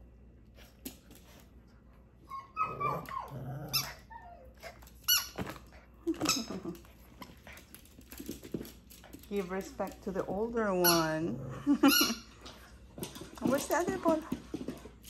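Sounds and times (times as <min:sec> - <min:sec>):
squeaky dog toy squeaking: 0:05.0 - 0:05.4, 0:10.8 - 0:11.2
dog vocal sounds: 0:10.7 - 0:12.1.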